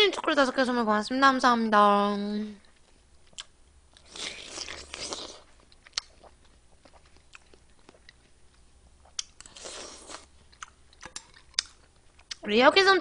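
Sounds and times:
person chewing wetly: 2.7s - 12.4s.

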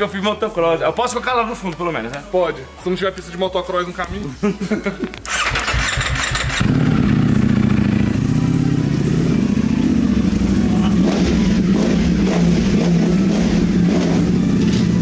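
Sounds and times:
motorcycle engine at low revs: 5.3s - 15.0s.

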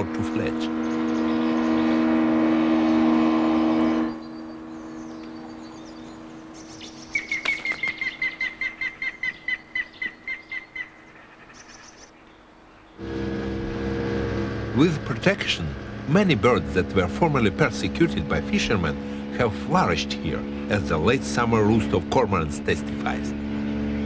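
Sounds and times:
outboard motor running: 0.0s - 6.6s, 13.0s - 24.0s.

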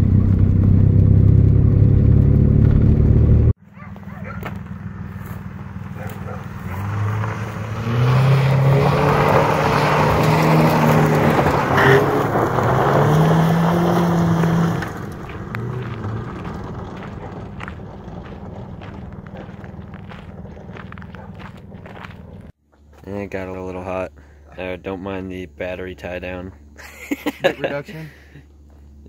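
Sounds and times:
car engine revving: 0.0s - 22.5s
tyres hissing on loose dirt: 26.8s - 28.6s.

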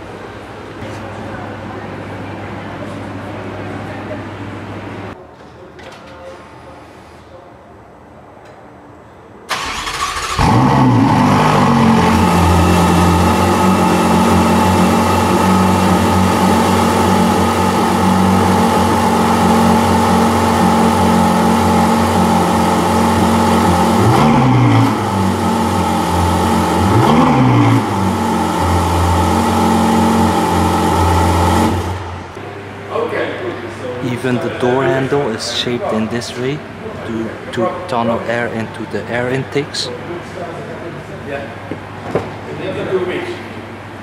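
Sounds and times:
car engine starting and idling: 9.5s - 32.5s
engine throttle blips: 9.5s - 32.8s.

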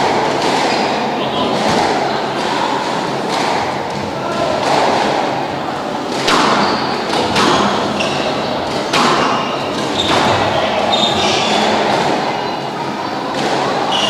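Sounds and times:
squash ball hits: 0.0s - 5.5s, 6.1s - 12.2s
shoes squeaking on court: 6.6s - 11.9s.

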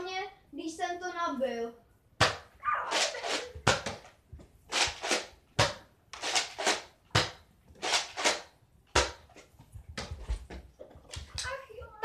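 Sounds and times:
toy dart blaster shots: 2.2s - 3.9s
dart blaster priming: 2.2s - 4.1s, 4.7s - 9.3s.

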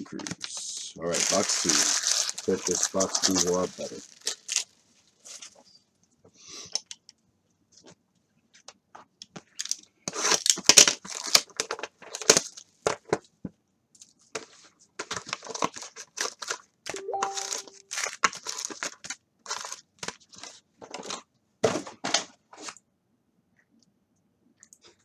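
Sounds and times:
wrappers crinkling and tearing: 0.0s - 5.5s, 9.6s - 12.7s, 15.0s - 21.2s.

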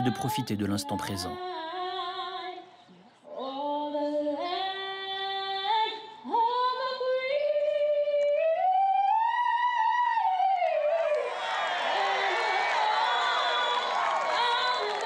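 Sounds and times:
woman singing: 0.0s - 11.3s, 14.3s - 15.0s.

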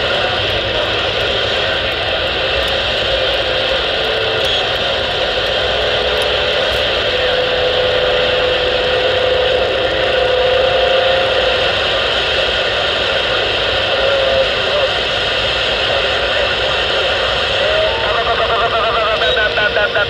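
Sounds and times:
radio static hiss: 0.0s - 20.0s
steady whistle tone: 3.6s - 14.9s, 17.6s - 20.0s.

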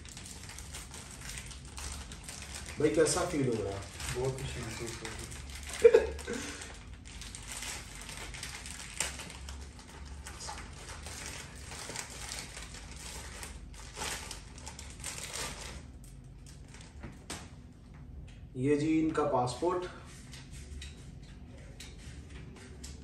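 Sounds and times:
plastic pouch crinkling: 0.0s - 17.0s
plastic ripping: 0.0s - 17.5s.

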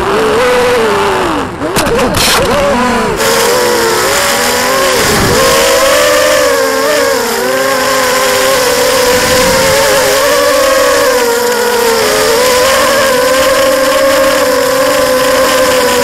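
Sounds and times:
drone motors whining: 0.0s - 16.0s.

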